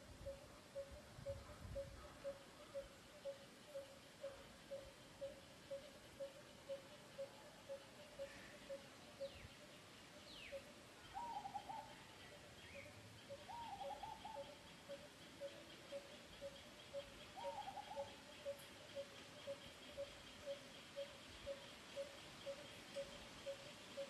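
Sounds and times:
bird warbling: 10.4 - 24.0.

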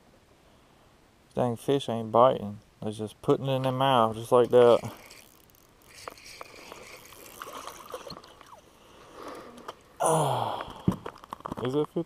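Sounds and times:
faint ticks of fishing tackle: 3.6 - 9.9
person's short falling voice: 10.0 - 10.9.

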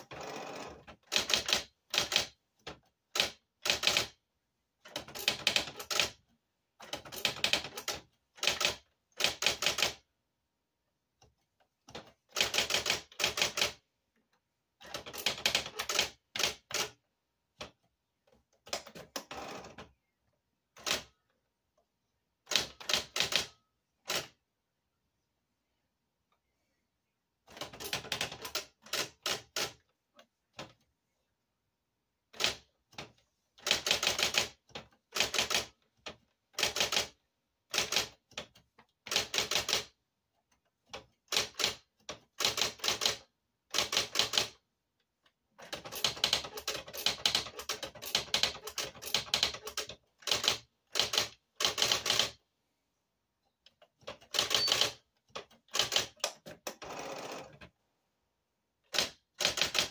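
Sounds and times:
electric typewriter typing: 0.0 - 4.2, 4.8 - 6.2, 6.8 - 10.0, 11.9 - 13.8, 14.8 - 17.0, 22.5 - 24.3, 27.5 - 29.8, 32.3 - 40.0, 40.8 - 44.6, 45.6 - 52.4, 53.9 - 57.7, 58.9 - 59.9.

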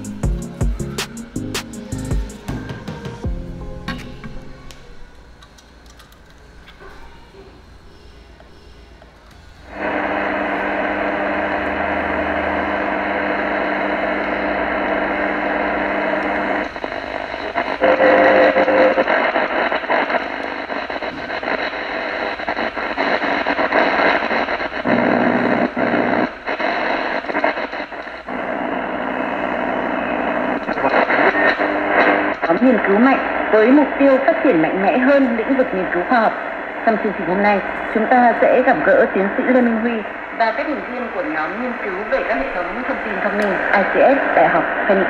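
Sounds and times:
radio static hiss: 6.4 - 45.0
buzzing hum: 9.6 - 45.0.

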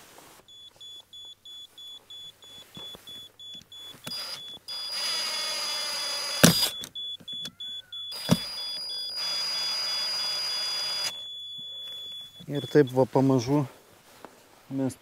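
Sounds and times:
rapid even beeping: 0.5 - 13.8
steady high tone: 1.5 - 13.7
cordless drill driving screws: 4.0 - 6.9, 8.1 - 11.2.

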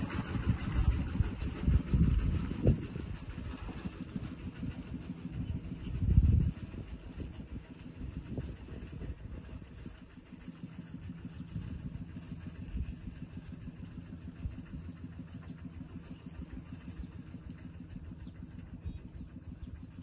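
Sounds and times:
engine humming: 0.0 - 20.0.

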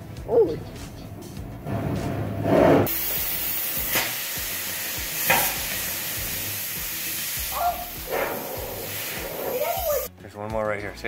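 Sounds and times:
cutting torch hissing: 1.7 - 10.1.

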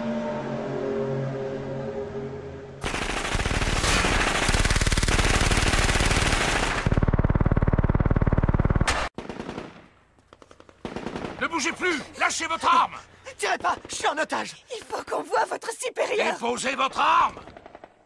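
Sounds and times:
automatic gunfire: 2.8 - 11.9.

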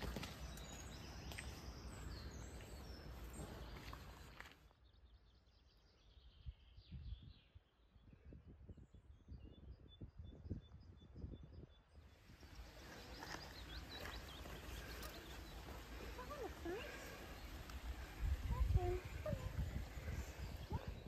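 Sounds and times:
faint bird chirps: 0.1 - 21.0.

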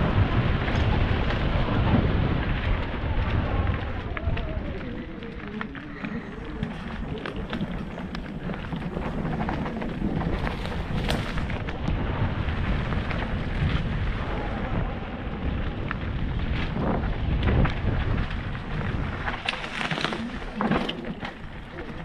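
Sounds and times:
bike knocking and rattling: 0.0 - 22.0
tyres rolling over dirt: 0.0 - 22.0
wind on microphone: 0.0 - 22.0.

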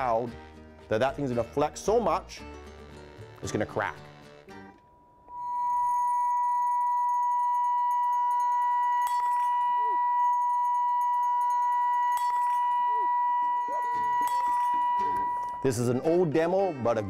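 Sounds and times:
loud steady sine tone: 5.2 - 16.1
glass crackling: 5.2 - 16.5.

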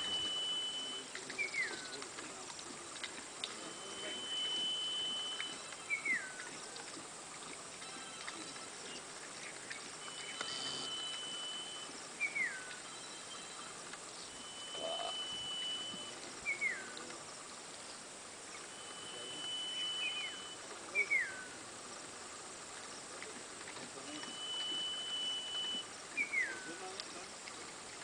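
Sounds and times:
high whistled animal calls: 0.0 - 2.0, 3.5 - 6.5, 10.0 - 17.0, 18.5 - 21.6, 24.1 - 26.8.

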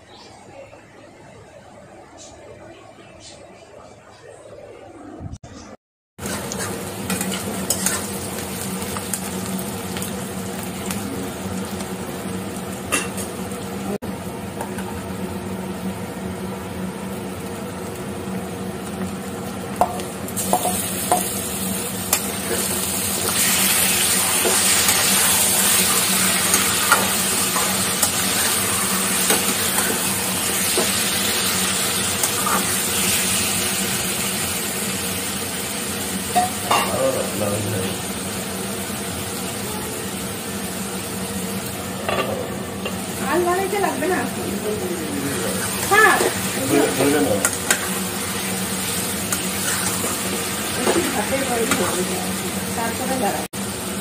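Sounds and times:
onions sizzling in oil: 6.2 - 54.0
spatula scraping and tapping pan: 6.3 - 8.1.

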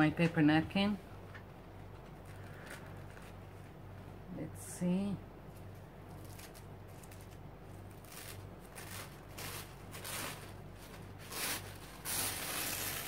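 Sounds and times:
paper napkin rustling: 5.6 - 13.0.

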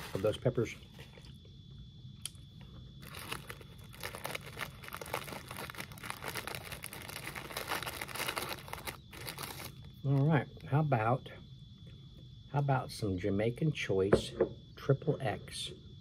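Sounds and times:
packaging crinkling: 0.0 - 0.4, 3.0 - 9.9.

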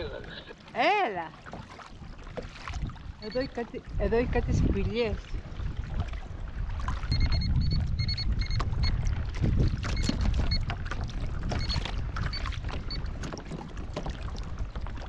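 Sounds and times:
water splashing against kayak: 0.0 - 15.0
wind on microphone: 2.0 - 15.0
short high beeps: 3.2 - 3.6, 7.1 - 9.0, 11.6 - 12.5.

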